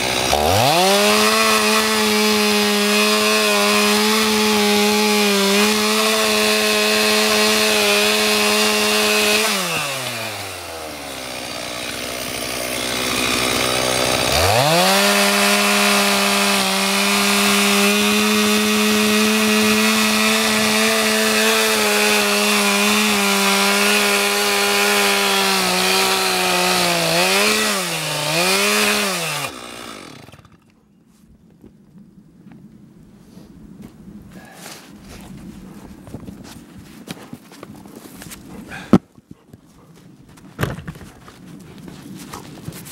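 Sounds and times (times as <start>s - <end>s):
chainsaw cutting log: 0.0s - 30.8s, 38.2s - 39.0s.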